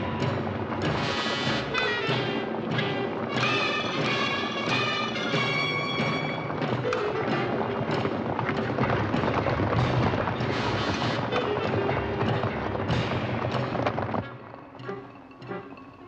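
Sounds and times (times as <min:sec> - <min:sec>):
horses galloping: 0:00.0 - 0:16.0
orchestral film score: 0:00.0 - 0:16.0.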